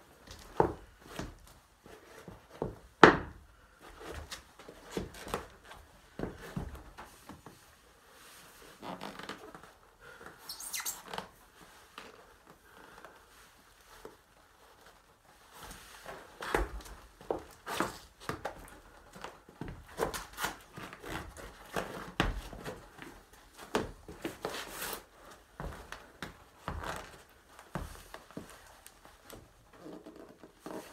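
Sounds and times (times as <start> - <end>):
knife scraping rubber sole: 10.5 - 11.2
feet stamping and scuffing: 15.6 - 29.6.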